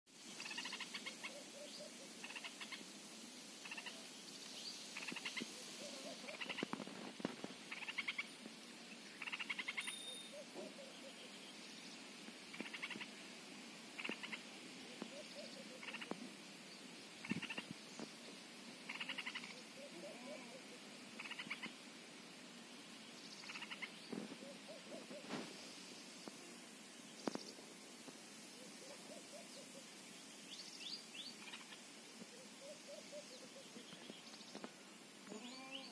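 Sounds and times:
low wavering animal calls: 5.0s - 6.6s, 18.9s - 21.7s.

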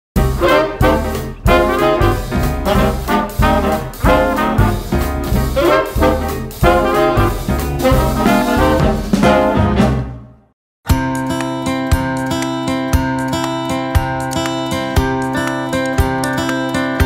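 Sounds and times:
swing music with brass: 0.2s - 10.5s.

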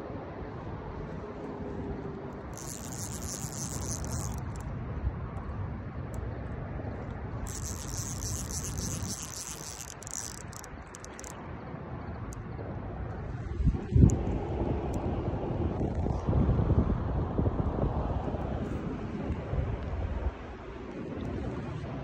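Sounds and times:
night insects trilling: 2.6s - 4.6s, 7.5s - 11.4s.

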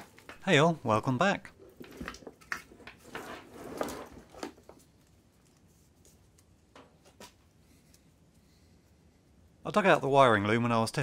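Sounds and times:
wires and connectors rustling: 1.5s - 8.5s.

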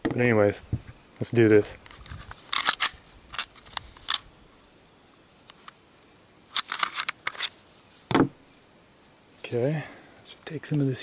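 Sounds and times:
pistol parts clicking and rattling: 1.9s - 4.3s, 6.5s - 7.5s
thud: 8.1s - 8.4s.

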